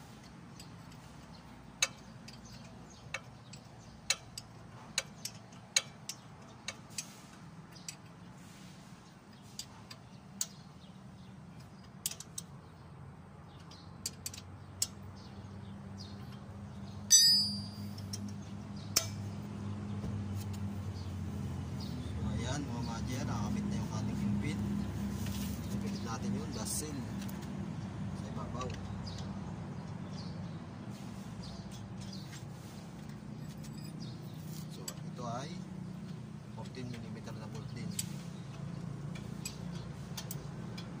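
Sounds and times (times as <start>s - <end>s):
wrench clicking on nuts: 1.7s - 8.2s, 11.6s - 12.6s, 13.5s - 15.1s, 37.9s - 41.0s
metal clang with ringing: 17.1s - 18.2s.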